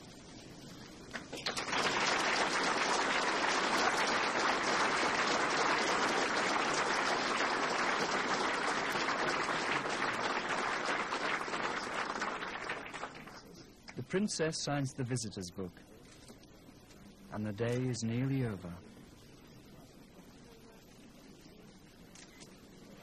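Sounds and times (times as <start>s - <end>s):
large crowd applauding: 1.1s - 13.5s.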